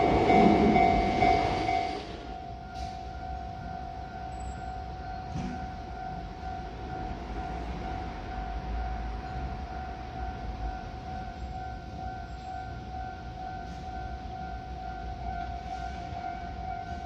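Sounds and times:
level crossing warning bell: 0:00.0 - 0:17.0
low rumble of city and rail: 0:00.0 - 0:17.0.

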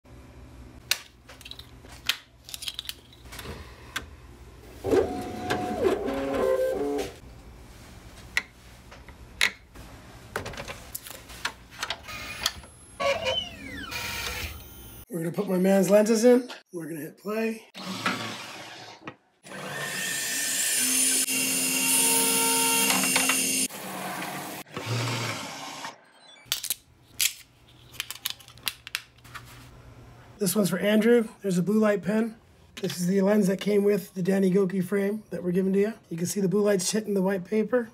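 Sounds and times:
machine motor whirring: 0:04.8 - 0:07.2, 0:12.0 - 0:15.0.

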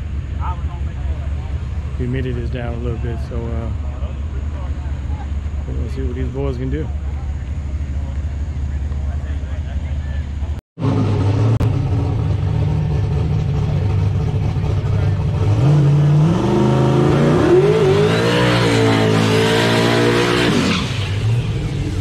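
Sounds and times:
drag car engine revving: 0:00.0 - 0:22.0.

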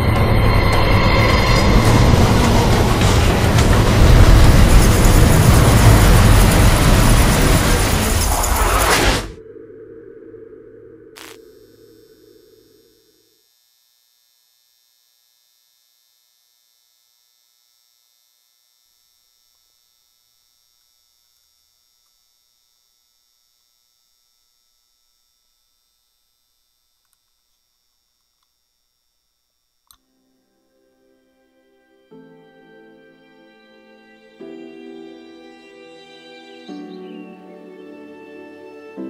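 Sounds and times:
soft music: 0:30.1 - 0:39.0.

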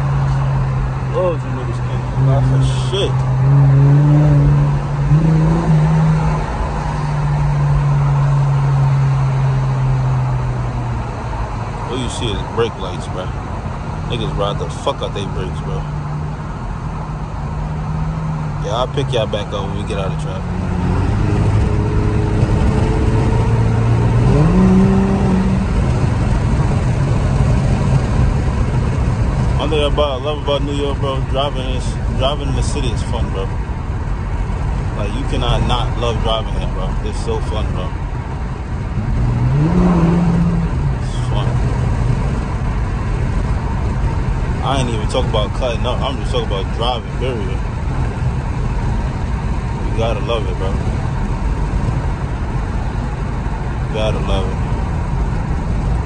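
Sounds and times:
car engine drone: 0:00.0 - 0:56.0
road noise: 0:00.0 - 0:56.0.

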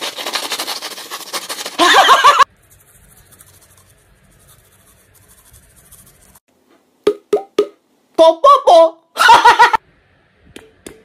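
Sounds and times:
toothbrush scrubbing teeth: 0:00.0 - 0:06.4.

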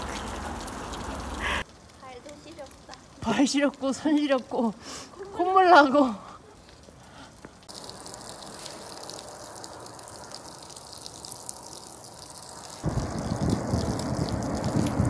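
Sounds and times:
wind buffeting microphone: 0:12.8 - 0:15.0.

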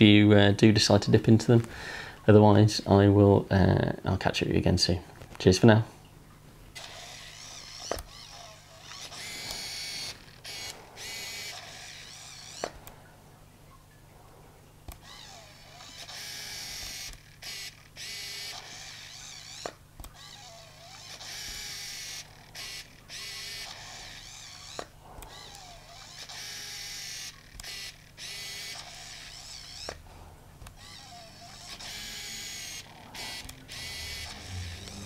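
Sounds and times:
camera lens motor whirring: 0:06.7 - 0:13.0, 0:14.9 - 0:35.0
camera sharp click: 0:24.6 - 0:30.0.

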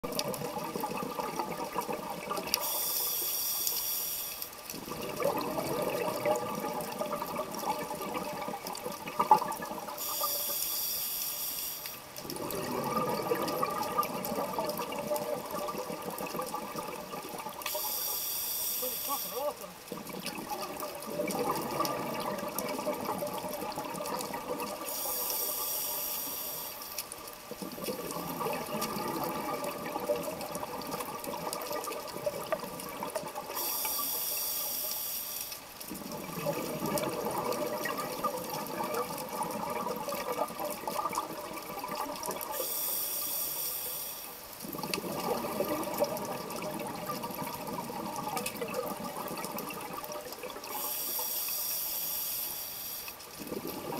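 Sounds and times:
regulator inhale hiss: 0:02.6 - 0:04.5, 0:10.0 - 0:12.0, 0:17.7 - 0:19.4, 0:24.8 - 0:27.0, 0:33.6 - 0:35.6, 0:42.5 - 0:44.4, 0:50.7 - 0:53.2.

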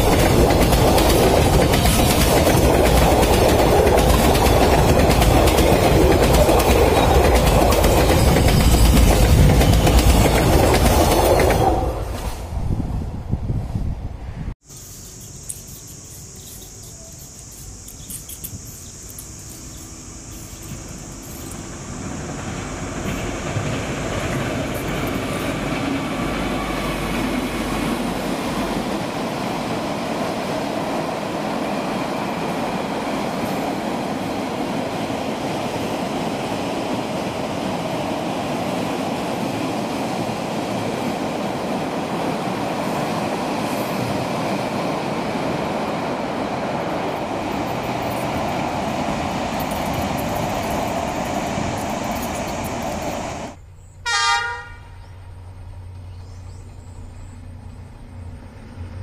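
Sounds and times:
wagon wheels on rails: 0:00.0 - 0:11.9, 0:14.7 - 0:27.6, 0:45.8 - 0:53.6
freight train rolling past: 0:00.0 - 0:59.0.

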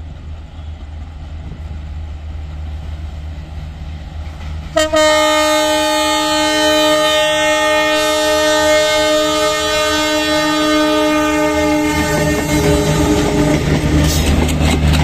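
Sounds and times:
locomotive engine rumble: 0:00.0 - 0:15.0
locomotive horn: 0:04.8 - 0:14.4.

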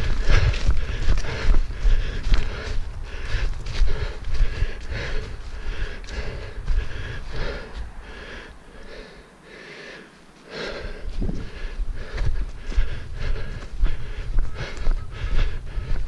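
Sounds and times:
heavy rhythmic panting: 0:00.0 - 0:16.0
low running thumps: 0:10.8 - 0:16.0.

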